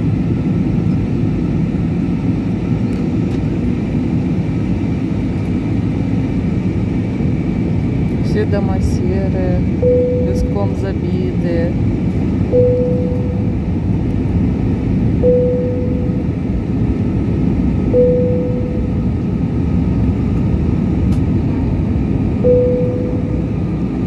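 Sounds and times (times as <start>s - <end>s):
airliner cabin engine noise: 0.0s - 24.0s
short clear tone: 9.8s - 10.7s, 12.5s - 13.5s, 15.2s - 16.2s, 17.9s - 19.0s, 22.4s - 23.4s.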